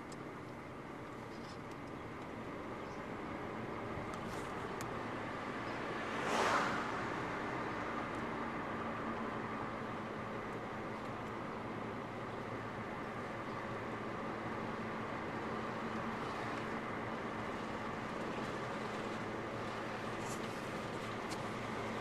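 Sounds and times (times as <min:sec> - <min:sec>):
road and engine noise inside car: 0:00.0 - 0:22.0
passing car swish: 0:05.5 - 0:08.0.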